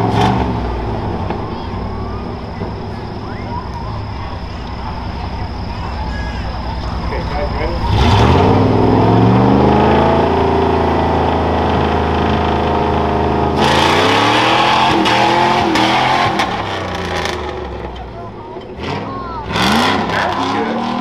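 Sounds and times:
truck engine revving hard: 0.0 - 21.0
tyres throwing dirt: 7.7 - 21.0.

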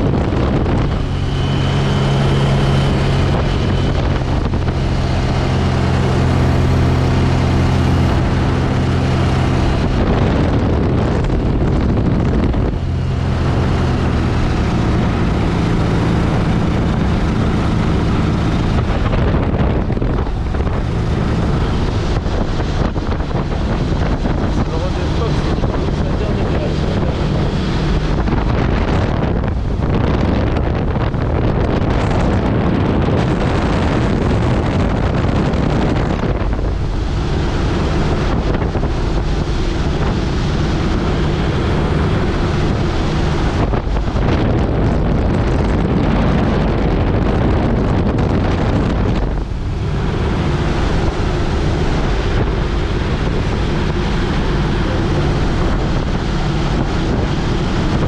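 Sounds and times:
aircraft engine and propeller running: 0.0 - 58.0
wind rushing over microphone: 0.0 - 58.0.

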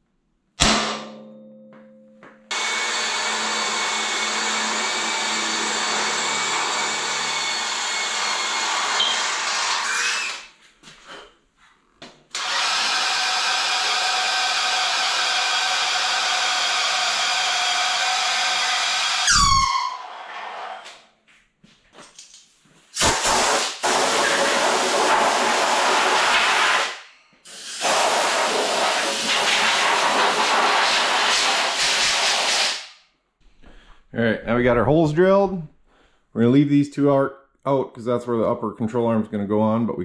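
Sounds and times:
hammer striking center punch: 0.6 - 2.5
electric drill boring steel: 2.5 - 10.5, 12.3 - 20.8, 23.6 - 32.8.

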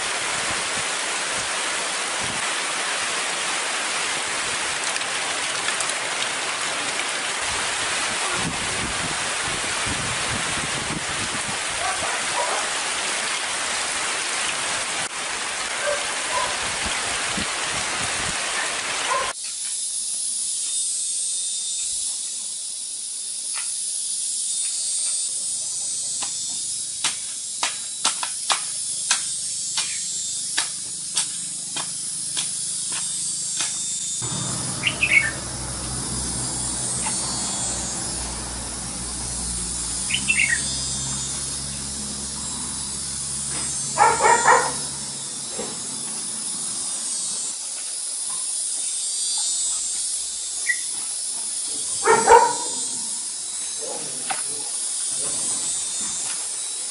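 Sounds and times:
steady high-pitched hiss: 0.0 - 56.9
low hum: 34.2 - 46.7.

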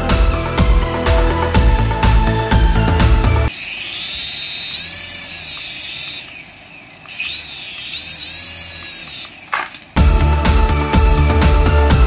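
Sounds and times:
toy helicopter rotor whining: 3.5 - 10.0.

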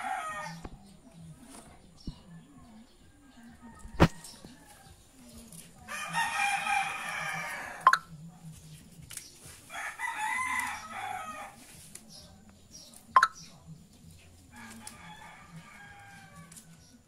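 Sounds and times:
rooster crowing: 0.0 - 0.7, 5.9 - 7.9, 9.7 - 11.6, 14.5 - 16.8.

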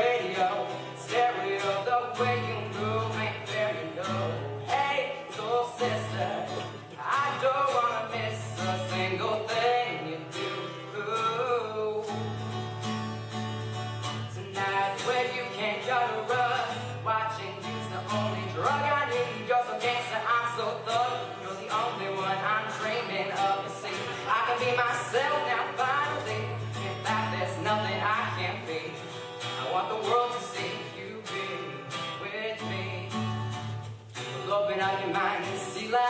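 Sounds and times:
man singing: 0.0 - 12.6, 14.1 - 36.0
strummed acoustic guitar: 0.0 - 36.0.

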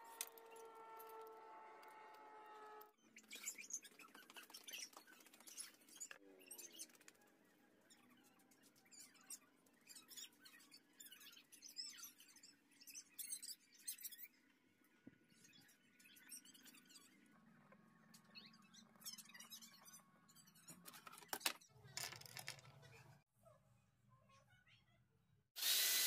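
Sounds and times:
rising squeak: 0.0 - 3.5.

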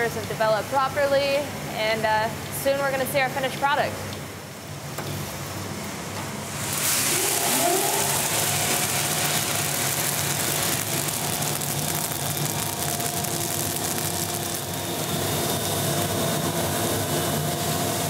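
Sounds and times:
roaster hum: 0.0 - 18.0
coffee beans rushing hiss: 6.5 - 16.7
brief rising whine: 6.6 - 11.2.

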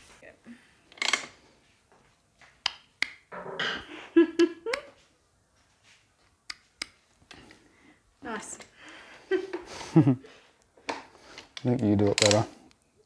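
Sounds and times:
hand tool clicks: 11.4 - 12.8.

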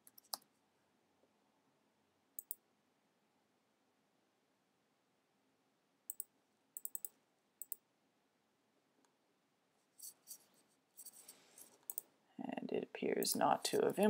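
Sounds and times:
mouse and keyboard clicks: 0.0 - 0.5, 2.4 - 2.6, 6.1 - 7.8, 11.0 - 12.1.

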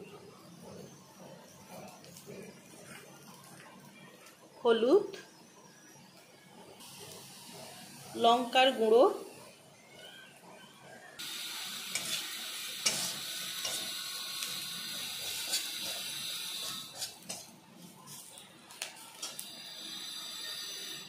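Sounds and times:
food sizzling in hot oil: 6.8 - 8.8, 11.2 - 21.0
metal spatula scraping pan: 11.9 - 14.0, 16.6 - 17.5.

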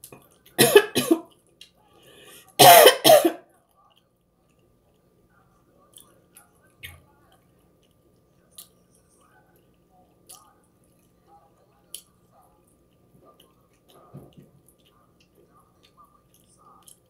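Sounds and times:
woman coughing: 0.6 - 1.3, 2.6 - 3.4.

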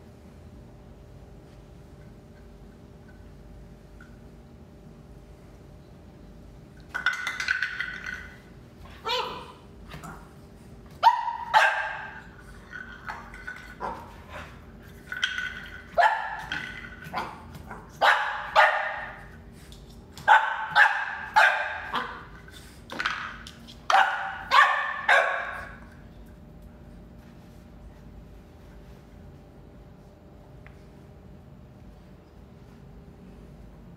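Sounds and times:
puppy barking: 11.0 - 12.2, 16.0 - 16.5, 17.2 - 19.2, 20.2 - 22.2, 23.9 - 25.8.

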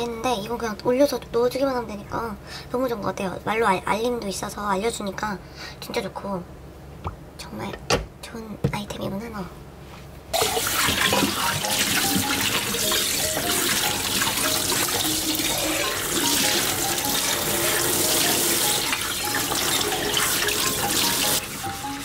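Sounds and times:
tap running into sink: 10.4 - 15.2
light background music: 10.4 - 22.0.

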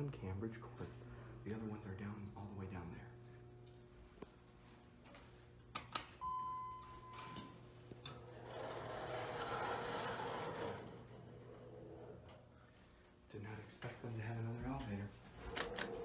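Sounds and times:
steady low hum: 0.0 - 16.0
elevator arrival tone: 6.2 - 12.5
elevator doors sliding with rattle: 8.0 - 12.6.

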